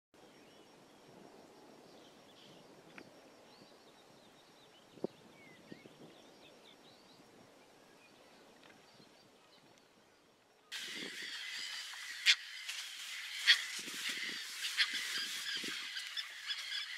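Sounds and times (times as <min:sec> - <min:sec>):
distant small birds singing: 0:01.8 - 0:16.9
terns calling: 0:10.6 - 0:16.9.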